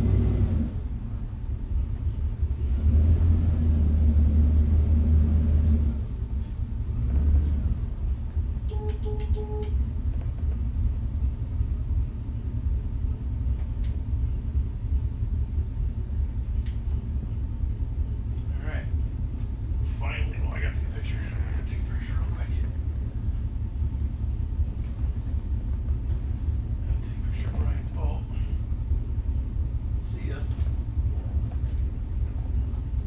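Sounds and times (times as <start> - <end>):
boat engines rumbling: 5.0 - 33.0
short electronic beeps: 8.7 - 9.8.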